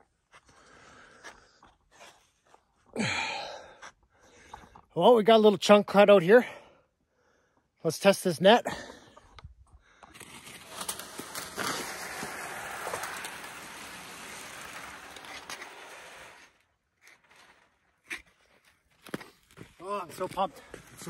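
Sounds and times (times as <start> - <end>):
ice skate blades scraping: 10.1 - 21.0.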